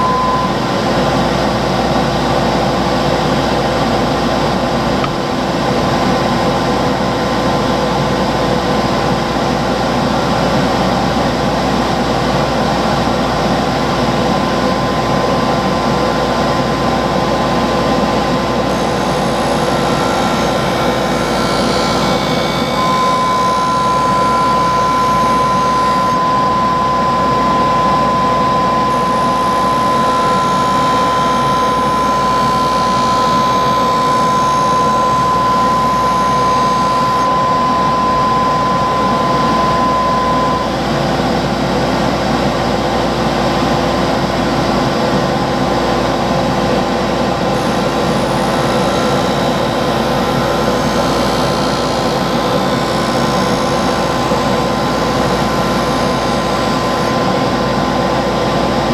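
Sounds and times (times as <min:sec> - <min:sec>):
blade grinding whine and hiss: 0:00.0 - 0:58.9
grinding wheel motor hum: 0:10.3 - 0:42.3, 0:46.0 - 0:58.9.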